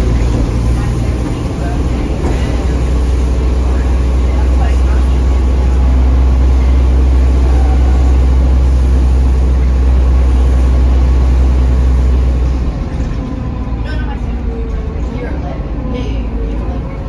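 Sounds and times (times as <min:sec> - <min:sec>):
bus diesel engine droning: 0:00.0 - 0:17.0.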